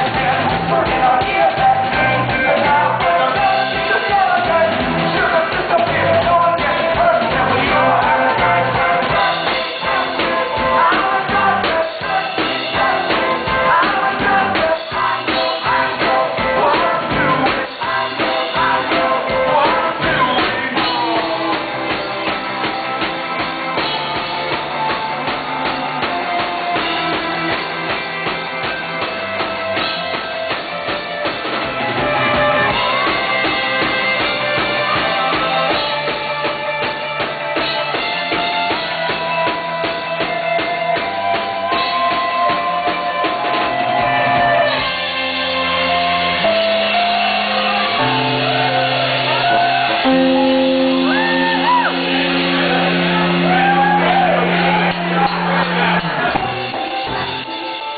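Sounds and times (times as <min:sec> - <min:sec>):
man singing: 0:00.0 - 0:22.4, 0:32.5 - 0:54.5
drum kit: 0:00.0 - 0:57.9
electric guitar: 0:00.0 - 0:57.9.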